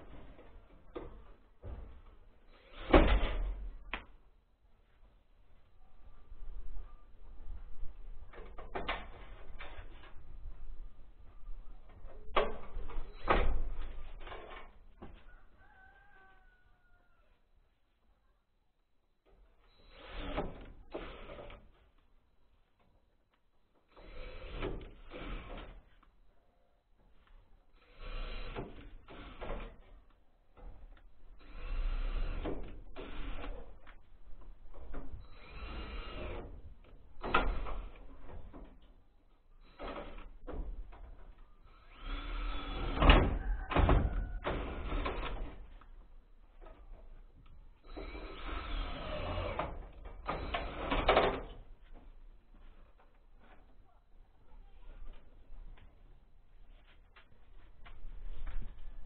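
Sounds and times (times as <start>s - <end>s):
rooster crowing: 15.2s - 17.4s, 43.2s - 44.9s
cordless drill driving screws: 19.6s - 21.7s, 23.9s - 25.8s, 27.8s - 29.8s, 31.4s - 33.9s, 35.2s - 36.6s, 41.7s - 43.4s, 47.8s - 51.5s.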